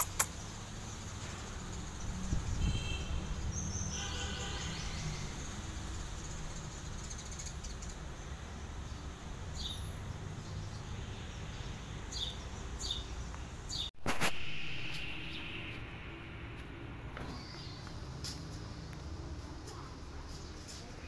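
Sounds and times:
bird chirping: 1.8s - 16.3s.

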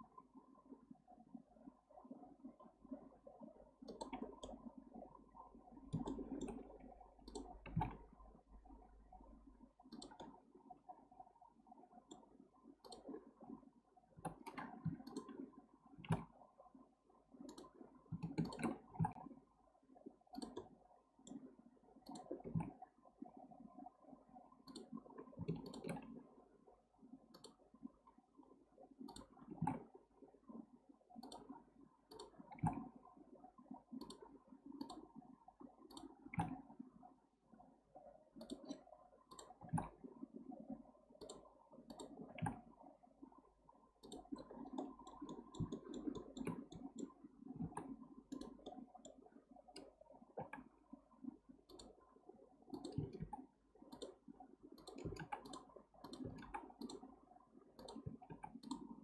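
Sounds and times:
faint low background noise: 0.0s - 59.0s
mouse and keyboard clicking: 3.8s - 4.6s, 5.9s - 8.1s, 9.9s - 10.4s, 12.1s - 13.2s, 14.2s - 15.4s, 17.4s - 19.2s, 20.3s - 21.4s, 24.6s - 26.1s, 29.1s - 29.8s, 31.2s - 32.8s, 34.0s - 35.1s, 38.4s - 40.0s, 41.2s - 42.6s, 44.0s - 50.7s, 51.7s - 52.0s, 52.7s - 54.2s, 54.8s - 57.1s, 57.8s - 59.0s.

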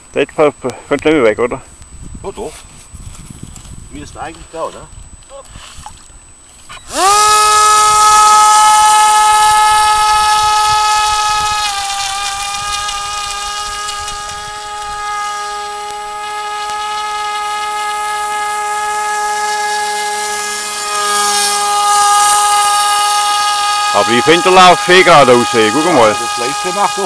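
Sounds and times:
model boat motor whining: 6.7s - 27.0s.

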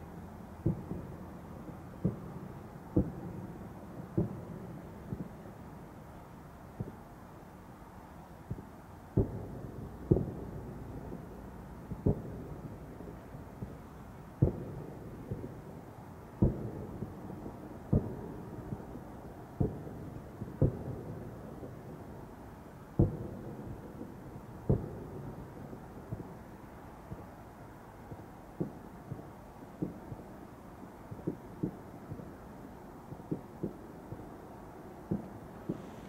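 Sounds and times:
faint firework pops: 0.6s - 1.2s, 1.9s - 5.4s, 8.4s - 12.9s, 13.5s - 15.7s, 16.4s - 21.9s, 23.0s - 26.4s, 28.1s - 30.3s, 31.1s - 32.4s, 35.0s - 36.0s
distant firework booms: 23.0s - 26.4s, 35.0s - 36.0s.

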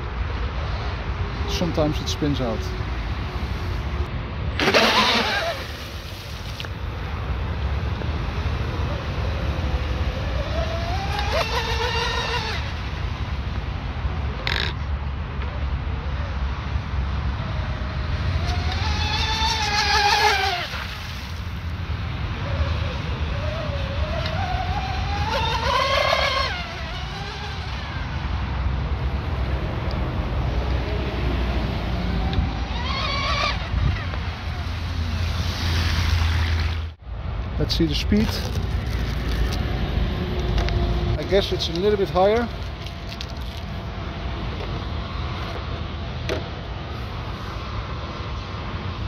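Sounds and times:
electric boat motors whining: 4.6s - 5.8s, 9.1s - 12.8s, 18.3s - 20.9s, 22.5s - 29.2s.

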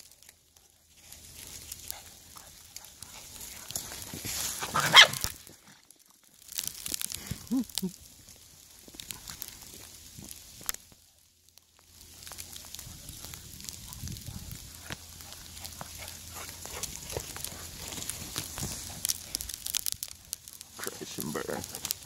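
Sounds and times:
dogs scuffling in snow: 0.9s - 5.2s
dog barking low: 4.6s - 5.2s.

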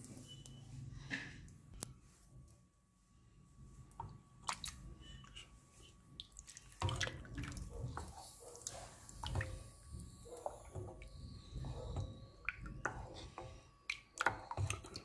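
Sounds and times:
spoon stirring cheese in pot: 6.7s - 15.0s.

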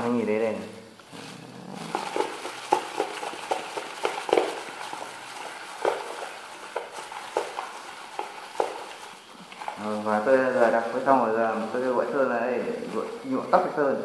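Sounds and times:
plastic clicking and crinkling: 1.8s - 11.9s.

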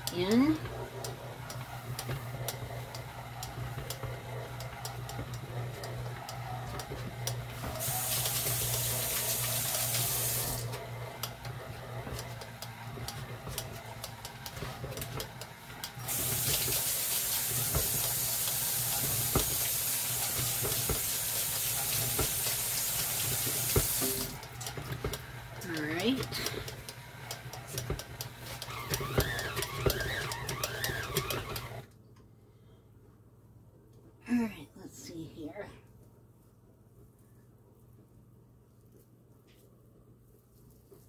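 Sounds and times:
stand mixer motor hum: 0.0s - 31.9s.

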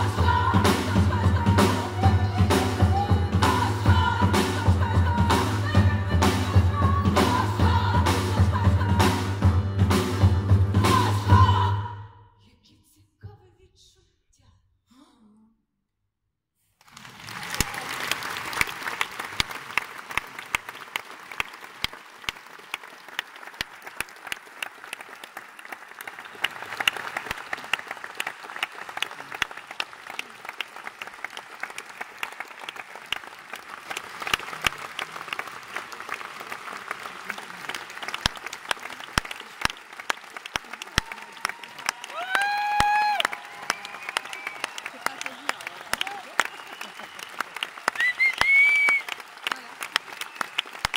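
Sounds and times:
audience applauding: 16.8s - 50.9s.

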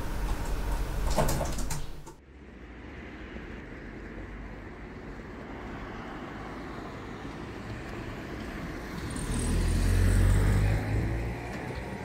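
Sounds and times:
street traffic: 0.0s - 12.0s
car passing close by: 5.4s - 12.0s.

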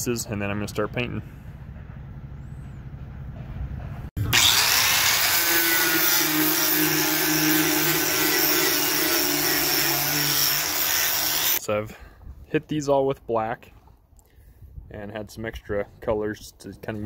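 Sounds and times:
angle grinder on steel: 4.2s - 11.6s.

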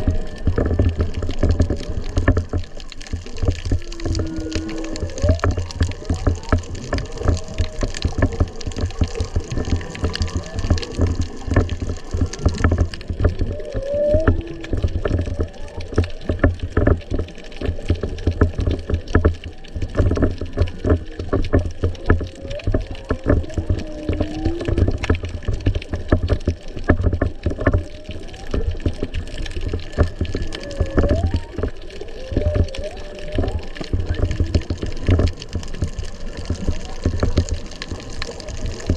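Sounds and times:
crackle of clicks: 0.0s - 38.9s
low rumble of moving water: 0.0s - 38.9s
whale moans and whoops: 3.8s - 5.7s, 13.4s - 15.8s, 23.6s - 25.0s, 30.3s - 33.8s.

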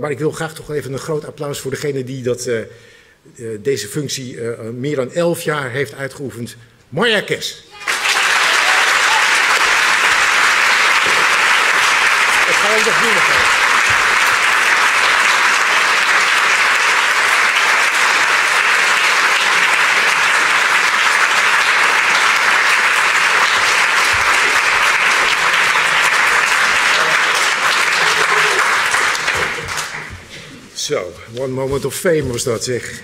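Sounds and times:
audience applauding: 7.7s - 30.4s.

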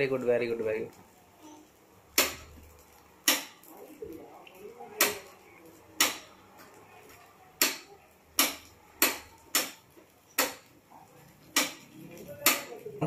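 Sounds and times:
metal skewer tapping a pan: 2.1s - 3.7s, 5.0s - 10.8s, 11.4s - 13.0s.

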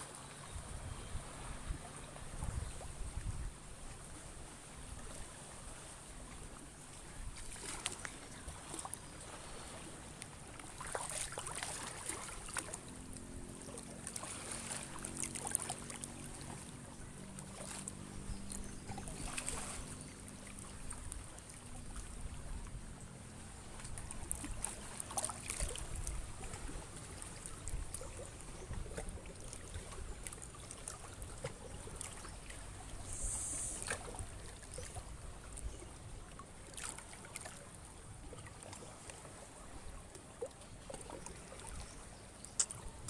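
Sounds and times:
river water flowing: 0.0s - 43.0s
water splashing: 7.4s - 22.6s, 23.5s - 35.2s.

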